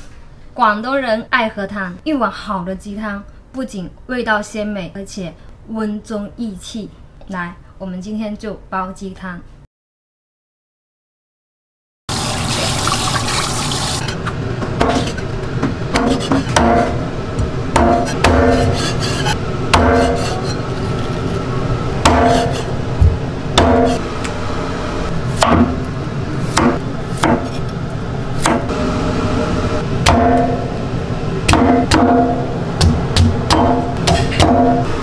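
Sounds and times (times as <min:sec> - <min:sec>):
cleaver chopping on cutting board: 0:22.0 - 0:22.6, 0:26.5 - 0:27.6, 0:32.8 - 0:34.8.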